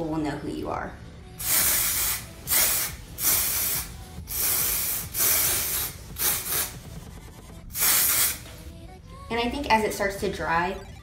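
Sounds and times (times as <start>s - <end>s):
aerosol spray hissing: 1.4s - 6.8s, 7.7s - 8.6s.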